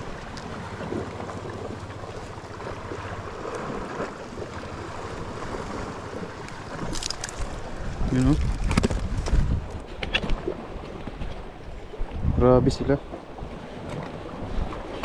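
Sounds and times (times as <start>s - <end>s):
surf on rocky shore: 0.0s - 15.0s
wind on microphone: 4.8s - 15.0s.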